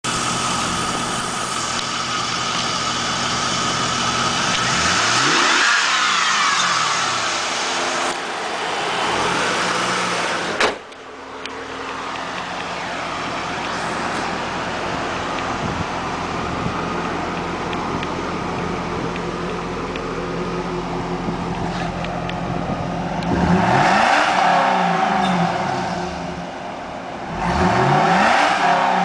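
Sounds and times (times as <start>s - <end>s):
car engine idling and revving: 0.0s - 29.0s
car hood slamming shut: 10.5s - 10.9s.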